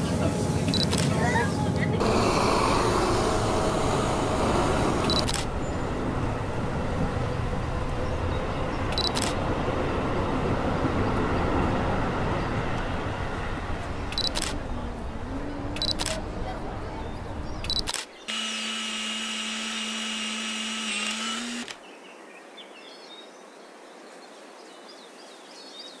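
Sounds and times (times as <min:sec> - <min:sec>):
traffic: 0:00.0 - 0:21.8
camera shutter clicks: 0:05.1 - 0:05.5, 0:14.2 - 0:14.6, 0:15.8 - 0:16.2, 0:17.7 - 0:18.1
faint voices: 0:13.7 - 0:17.9.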